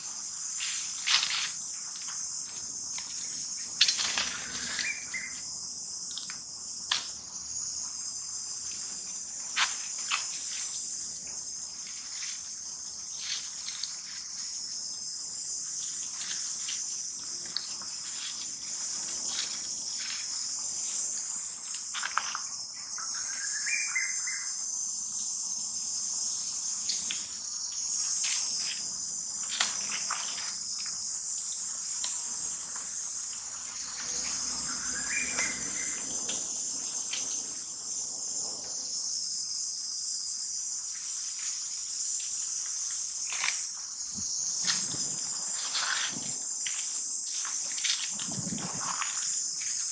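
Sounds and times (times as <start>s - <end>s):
high-pitched insect chorus: 0.0s - 49.9s
rising chirping call: 34.6s - 36.1s.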